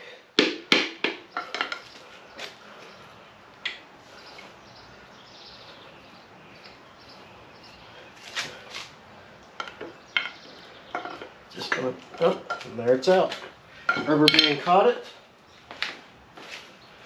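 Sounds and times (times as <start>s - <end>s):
sharp knocks on engine block: 0.4s - 1.2s.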